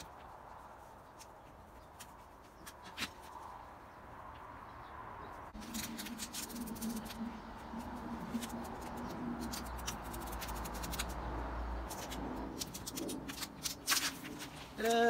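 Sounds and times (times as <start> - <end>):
plastic film crackling as peeled: 11.9 - 14.9.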